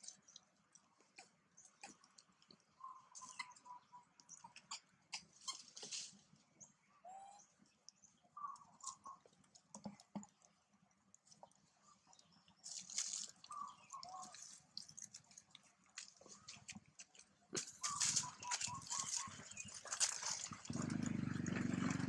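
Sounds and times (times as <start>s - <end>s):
rustle of leaves: 5.4s - 6.4s, 12.6s - 15.2s, 17.6s - 21.8s
monkey moving over dry leaves: 12.6s - 21.3s.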